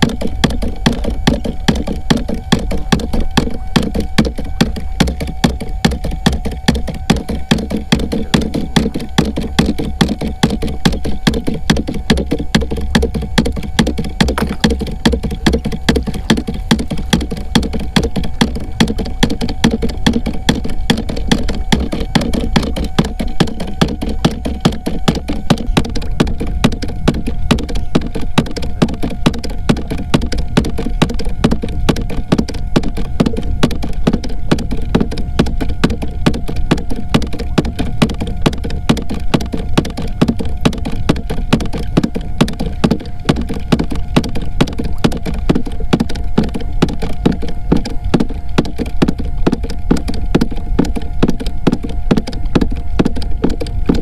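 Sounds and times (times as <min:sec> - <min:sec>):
rapid sharp knocks: 0:00.0 - 0:54.0
steady hum: 0:00.0 - 0:54.0.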